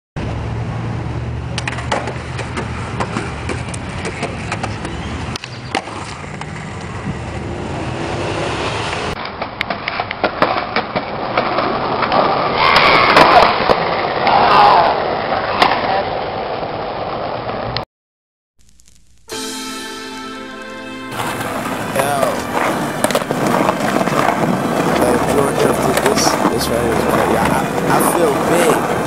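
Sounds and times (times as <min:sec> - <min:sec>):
skateboard wheels rolling on concrete: 0:00.2 - 0:17.8, 0:21.1 - 0:29.0
skateboard clacks and knocks: 0:01.6 - 0:05.1, 0:09.2 - 0:14.4.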